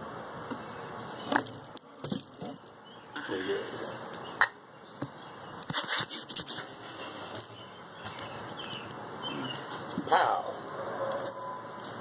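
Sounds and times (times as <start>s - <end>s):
scratchy rubbing and scraping: 5.7s - 7.5s.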